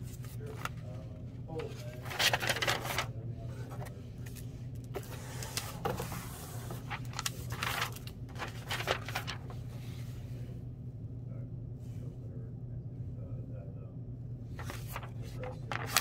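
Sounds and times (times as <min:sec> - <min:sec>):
steady low hum: 0:00.0 - 0:16.0
paper and cardboard rustling: 0:01.6 - 0:04.4, 0:05.0 - 0:10.0, 0:14.6 - 0:16.0.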